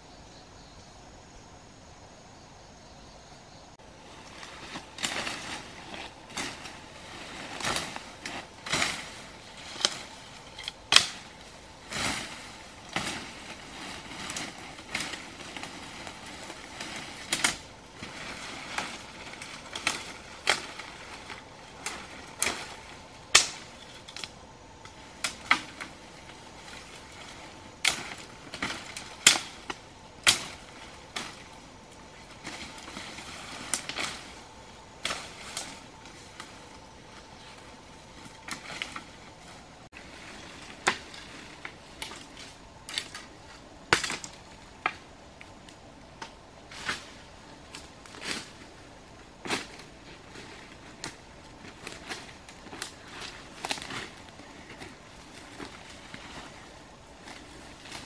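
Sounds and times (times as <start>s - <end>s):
rustling vegetation: 0.0s - 58.0s
machete chopping undergrowth: 7.6s - 15.4s, 23.3s - 23.7s, 27.7s - 31.4s, 43.8s - 45.0s.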